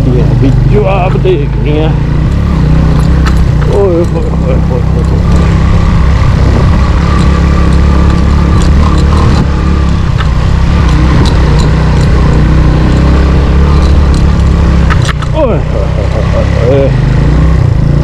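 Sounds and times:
motorcycle engine rumble: 0.0s - 18.0s
knocks and rattles: 2.3s - 15.6s.

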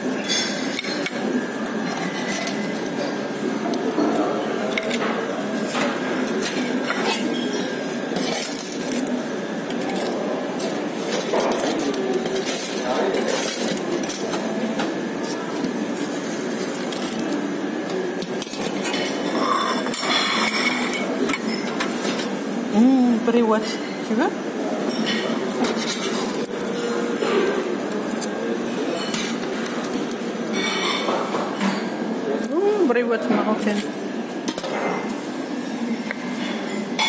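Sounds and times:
murmur of voices: 0.0s - 37.0s
cutlery and dishes clinking: 0.1s - 9.1s, 9.7s - 22.3s, 24.8s - 32.5s.

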